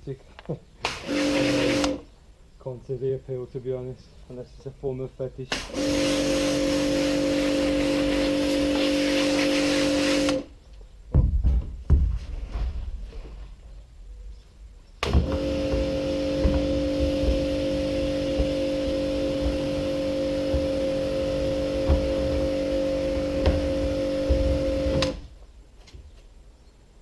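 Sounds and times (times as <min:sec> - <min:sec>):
pressure washer motor hum: 0:00.9 - 0:02.0, 0:05.5 - 0:10.5, 0:15.0 - 0:25.2
water jet hissing: 0:00.9 - 0:02.0, 0:05.5 - 0:10.5, 0:15.2 - 0:25.2.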